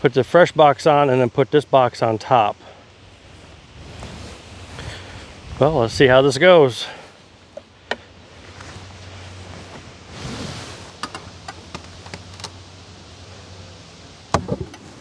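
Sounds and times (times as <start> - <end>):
wooden hive parts clicking: 11.0 - 12.6.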